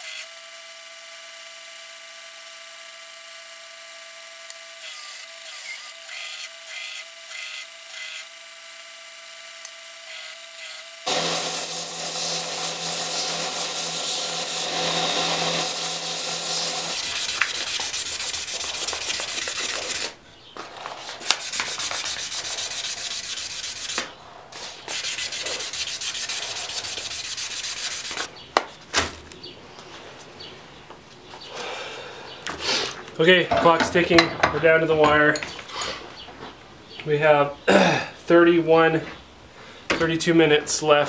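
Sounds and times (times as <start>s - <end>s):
wood hissing against sanding belt: 11.0s - 20.2s, 21.2s - 28.3s
belt grinder motor hum: 11.1s - 17.1s.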